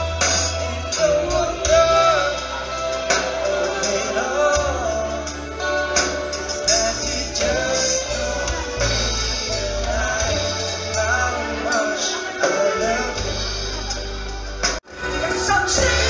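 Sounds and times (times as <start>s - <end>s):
keyboard: 0.0s - 16.0s
person singing: 0.0s - 16.0s.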